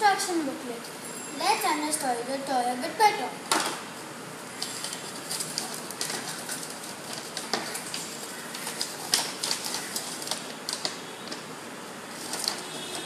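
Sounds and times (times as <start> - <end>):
paper crackling and rustling: 4.6 - 13.0.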